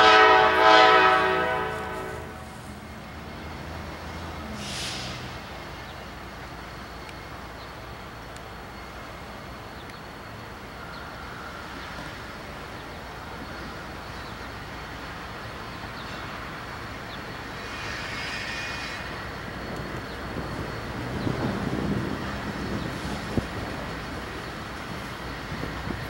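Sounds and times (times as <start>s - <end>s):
diesel locomotive engine rumble: 0.0s - 26.0s
hiss: 4.4s - 5.5s.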